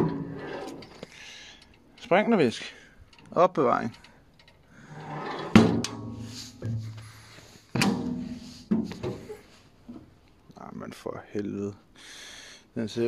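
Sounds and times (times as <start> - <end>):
metal lid heavy thunks: 5.4 - 6.9, 7.8 - 9.2.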